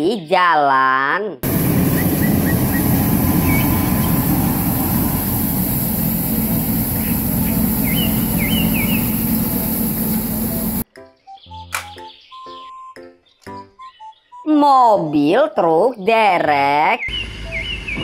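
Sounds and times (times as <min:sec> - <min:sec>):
street sweeper engine and brush: 0:01.4 - 0:10.8.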